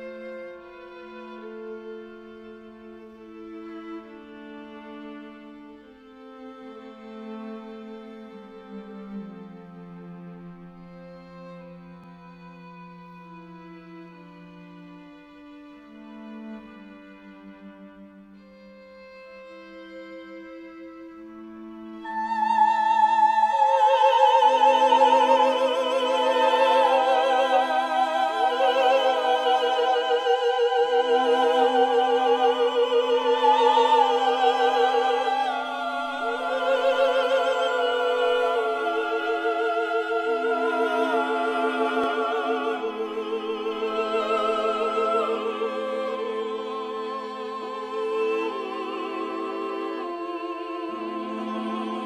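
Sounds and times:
operatic voice singing: 22.1s - 52.0s.

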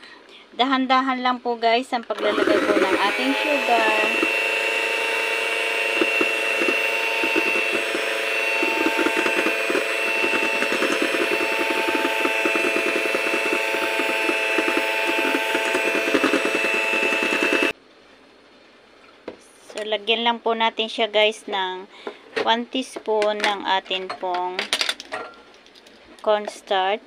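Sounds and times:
electric hand mixer whining: 2.2s - 17.8s.

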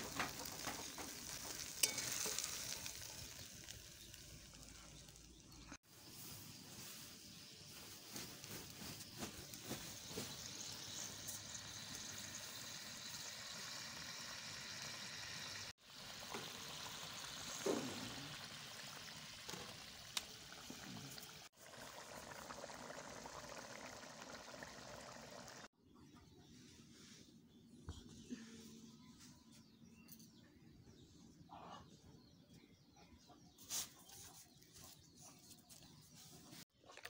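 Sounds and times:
curry bubbling in pot: 10.6s - 25.7s.

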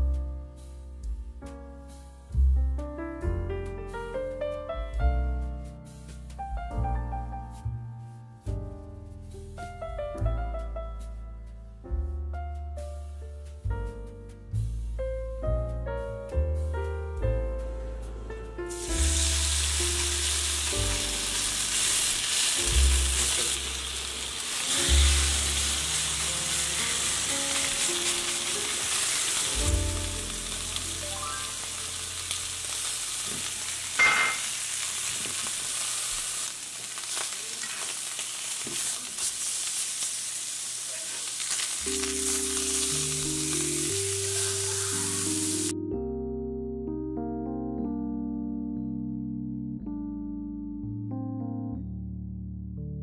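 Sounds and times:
meat sizzling in skillet: 18.7s - 45.7s.

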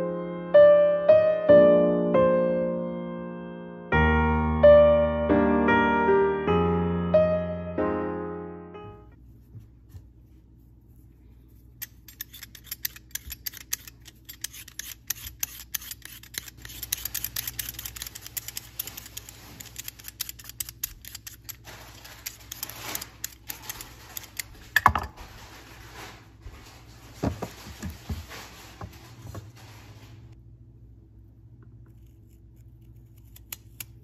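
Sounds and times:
peeler scraping vegetable skin: 11.8s - 24.8s, 31.9s - 34.0s.

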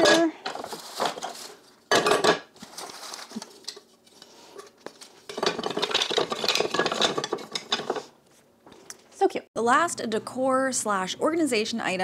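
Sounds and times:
wooden utensils clattering: 0.0s - 3.9s, 4.6s - 8.2s.

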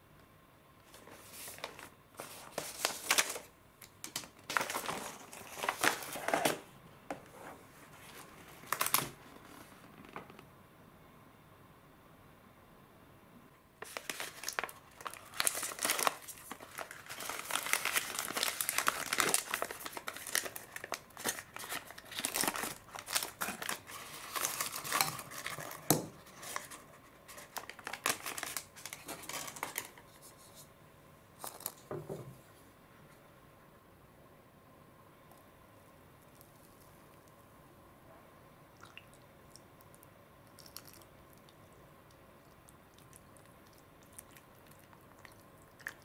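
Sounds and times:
plastic sachet crinkling and tearing: 0.9s - 3.5s, 4.1s - 6.6s, 13.8s - 30.0s.

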